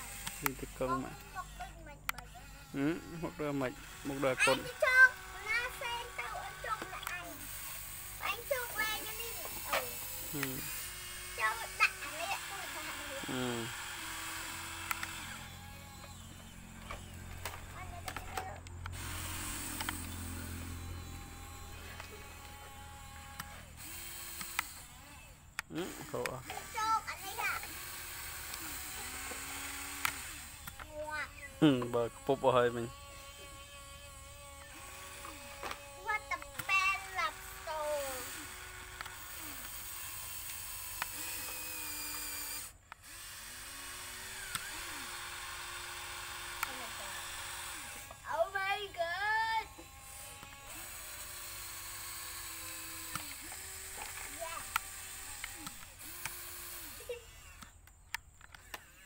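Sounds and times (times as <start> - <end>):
small motor whining: 0.0 - 59.0
sharp clicks: 2.0 - 2.4, 14.1 - 20.5, 23.2 - 32.0, 35.2 - 37.5, 38.3 - 43.1, 44.4 - 45.6, 51.8 - 59.0.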